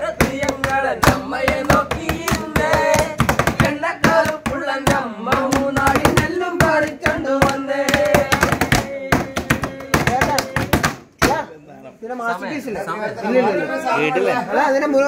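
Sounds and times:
hand drumming: 0:00.0 - 0:11.0
men singing together: 0:00.0 - 0:11.1.

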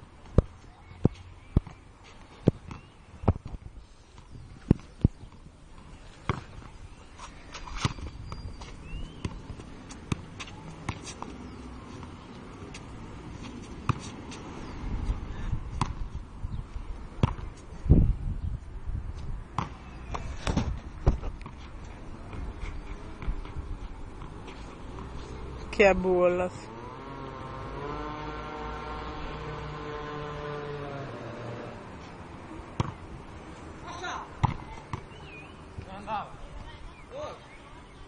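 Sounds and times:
ball bouncing on hard court: 0:06.3 - 0:06.6, 0:07.7 - 0:11.4, 0:13.8 - 0:14.2, 0:15.7 - 0:16.1, 0:17.2 - 0:17.5, 0:19.5 - 0:21.6, 0:32.8 - 0:33.0, 0:34.4 - 0:35.1.

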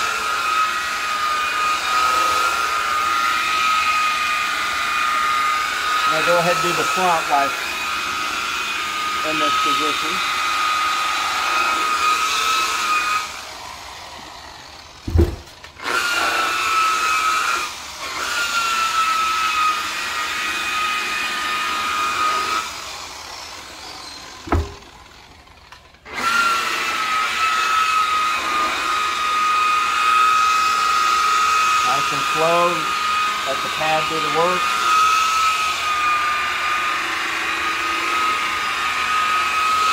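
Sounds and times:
rotary buffer motor whine: 0:00.0 - 0:39.9
short low thump: 0:15.1 - 0:15.6, 0:24.4 - 0:25.0.

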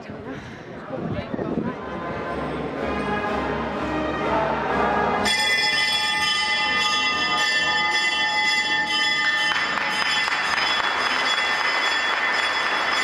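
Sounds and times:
crowd murmur: 0:00.0 - 0:13.0
bells ringing: 0:05.2 - 0:13.0.

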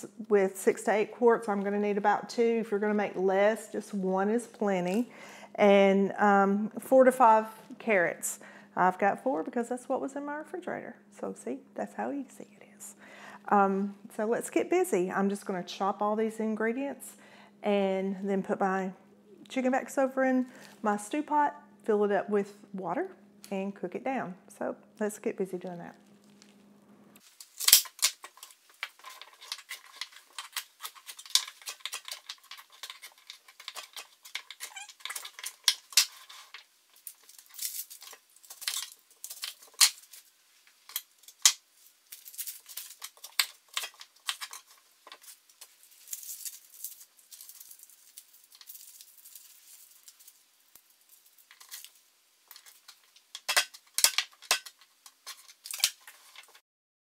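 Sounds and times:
onion skin rustling: 0:25.8 - 0:56.6.

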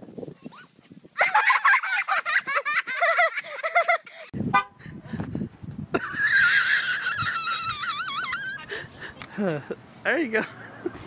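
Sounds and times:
person laughing high-pitched: 0:01.2 - 0:04.1, 0:05.9 - 0:09.8.

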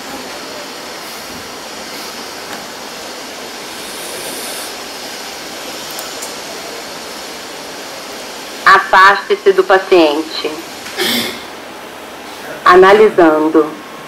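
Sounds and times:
room background hiss: 0:00.0 - 0:14.0.

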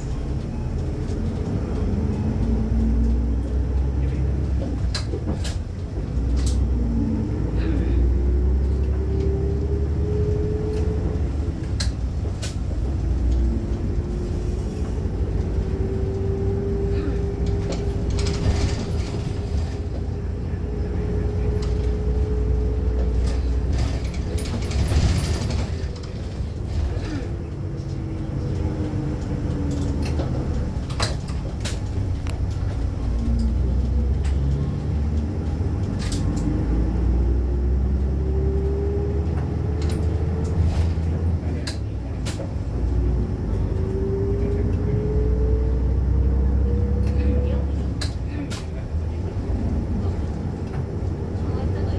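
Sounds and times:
bus engine rumble and whine: 0:00.0 - 0:51.9.

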